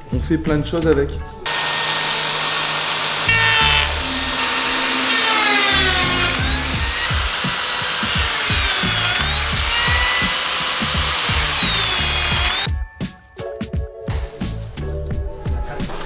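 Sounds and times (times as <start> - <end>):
plate joiner motor whining: 1.5 - 12.7
music with steady beat: 4.0 - 16.0.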